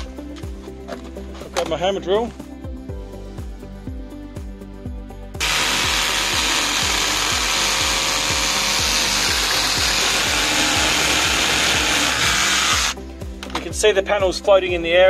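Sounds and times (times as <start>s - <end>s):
background music with steady beat: 0.0s - 15.0s
hammer drill boring into concrete: 5.4s - 13.0s.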